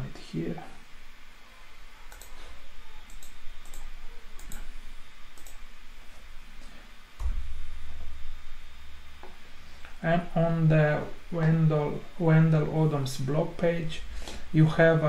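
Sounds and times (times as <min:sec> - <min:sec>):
computer mouse clicks: 0:02.1 - 0:04.7, 0:05.3 - 0:05.6.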